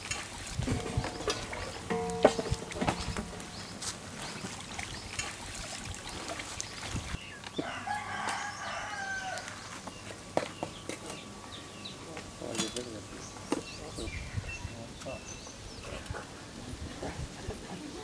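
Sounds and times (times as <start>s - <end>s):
metal ladle clinking in a pan: 0.1s - 4.6s
rooster crowing: 7.6s - 9.6s.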